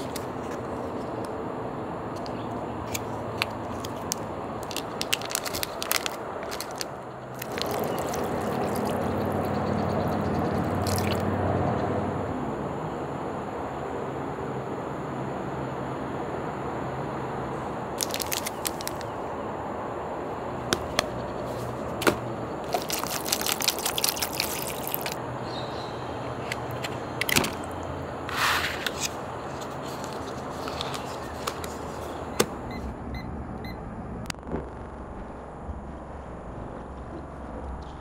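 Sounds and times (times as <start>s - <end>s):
crinkling plastic packaging: 2.9s - 9.4s, 10.7s - 11.2s, 18.0s - 19.1s, 22.6s - 25.2s
food squished from vacuum pack: 4.7s - 9.1s, 10.7s - 11.2s, 18.0s - 19.0s, 22.7s - 25.2s
water pouring into plastic tray: 7.4s - 9.4s, 10.6s - 11.2s, 22.8s - 25.2s.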